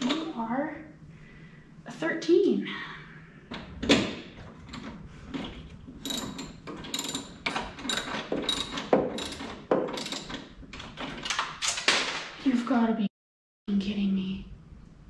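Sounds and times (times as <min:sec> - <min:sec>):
hand ratchet clicking: 0:06.0 - 0:11.4.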